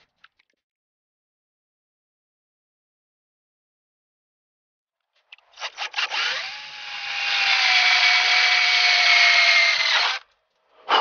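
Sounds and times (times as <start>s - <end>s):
drill boring through steel sheet: 5.6s - 10.2s.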